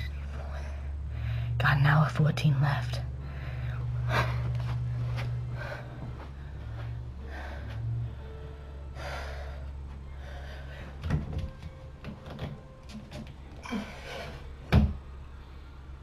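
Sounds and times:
heavy breathing: 0:00.2 - 0:01.6, 0:03.1 - 0:11.0.

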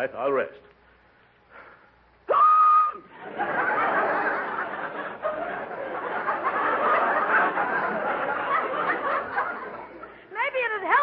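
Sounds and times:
studio audience laughing: 0:03.1 - 0:10.3.

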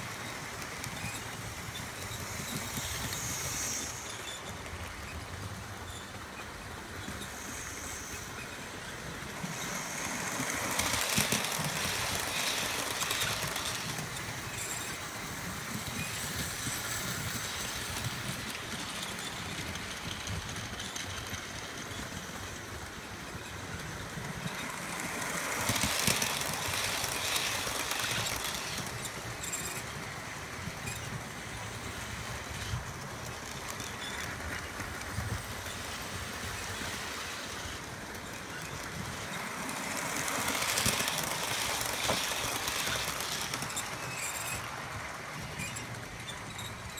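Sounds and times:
model train hum: 0:00.0 - 0:46.9
model train wheels clicking on rails: 0:00.0 - 0:46.9.

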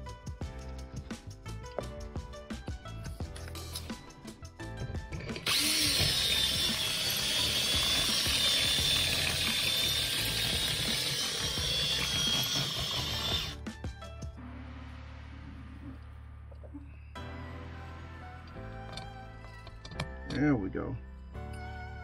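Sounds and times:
power drill boring through metal: 0:05.2 - 0:13.6.

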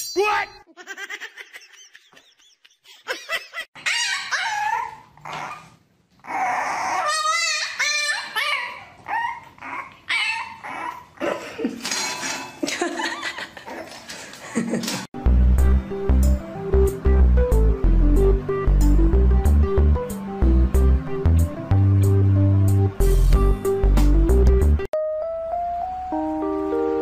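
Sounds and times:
puppy whining and yelping: 0:03.8 - 0:11.3.

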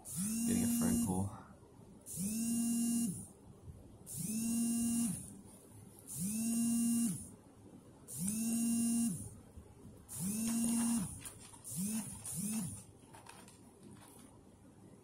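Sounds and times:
pulsing electric buzz: 0:00.0 - 0:01.2, 0:02.1 - 0:03.3, 0:04.1 - 0:05.3, 0:06.1 - 0:07.3, 0:08.1 - 0:09.4, 0:10.1 - 0:12.8.

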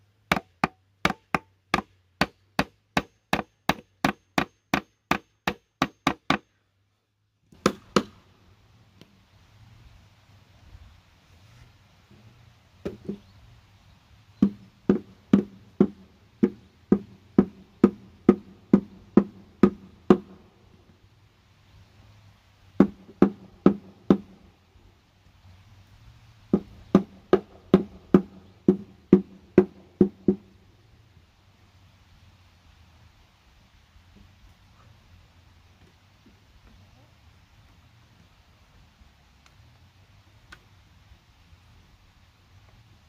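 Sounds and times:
hammer striking wood: 0:00.3 - 0:06.5, 0:07.6 - 0:08.2, 0:14.4 - 0:20.4, 0:22.8 - 0:24.3, 0:26.5 - 0:30.5.

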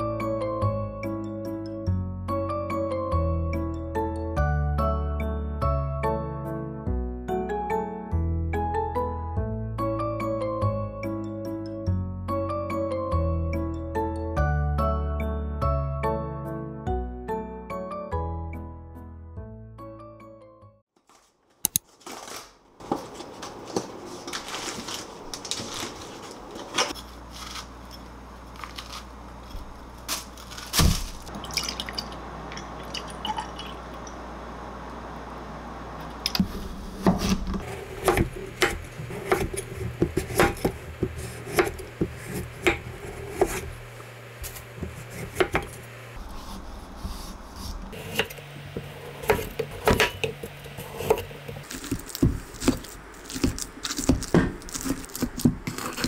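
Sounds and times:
milk pouring into beaker: 0:31.3 - 0:34.0
knife cutting onto wooden board: 0:37.0 - 0:43.7, 0:46.4 - 0:56.0.

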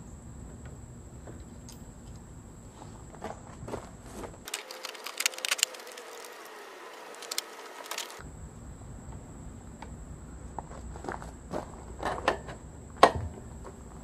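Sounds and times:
metal parts clicking: 0:04.5 - 0:08.2.

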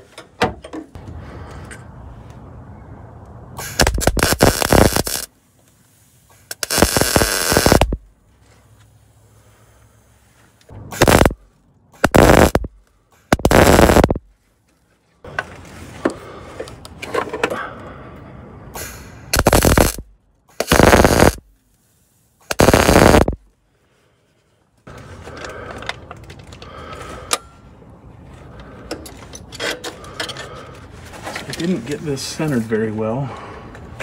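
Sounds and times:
welder arc crackling: 0:03.6 - 0:05.3, 0:06.4 - 0:08.0, 0:10.9 - 0:11.4, 0:12.0 - 0:12.7, 0:13.3 - 0:14.2, 0:19.4 - 0:21.5, 0:22.4 - 0:23.4.

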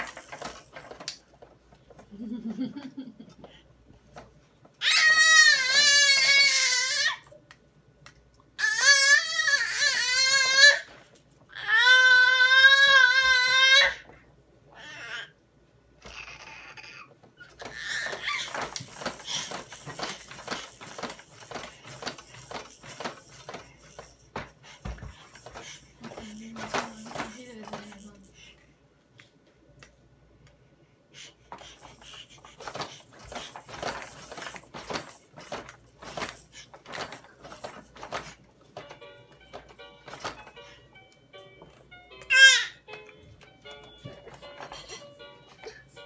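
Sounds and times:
plastic toys clacking and rattling: 0:00.0 - 0:02.1, 0:17.3 - 0:28.5, 0:31.5 - 0:40.6.

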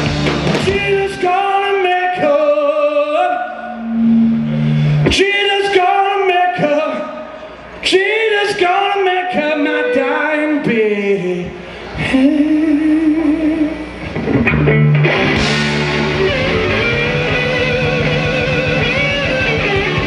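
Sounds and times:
blues-rock band playing: 0:00.0 - 0:01.2, 0:14.1 - 0:20.0
electric guitar: 0:00.0 - 0:01.2, 0:13.1 - 0:20.0
man singing: 0:00.6 - 0:03.8, 0:05.0 - 0:07.2, 0:07.8 - 0:13.8.

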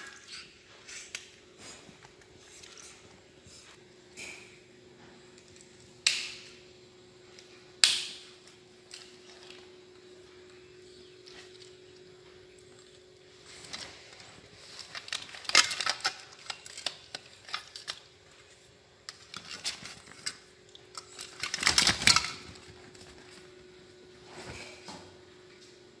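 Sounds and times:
faint steady hum: 0:00.0 - 0:26.0
plastic toys clattering: 0:13.5 - 0:23.2.

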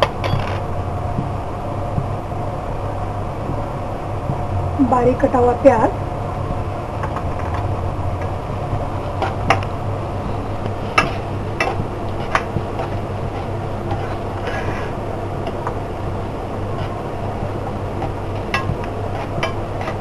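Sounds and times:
onion frying in oil: 0:00.0 - 0:20.0
steady low hum: 0:00.0 - 0:20.0.

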